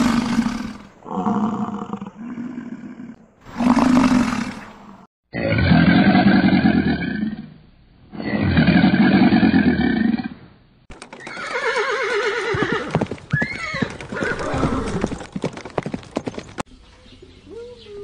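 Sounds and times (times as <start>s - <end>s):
hooves clopping: 10.9s - 16.7s
horse whinnying: 11.2s - 15.2s.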